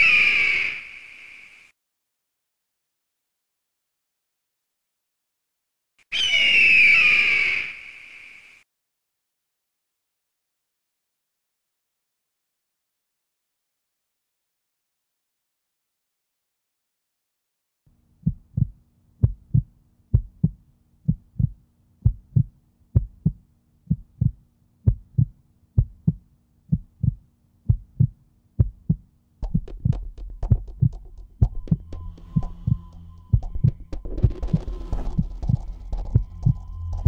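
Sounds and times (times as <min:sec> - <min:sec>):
deep heartbeat thumps: 0:18.2 - 0:37.0
low drone: 0:29.4 - 0:37.0
high steady tone: 0:30.8 - 0:37.0.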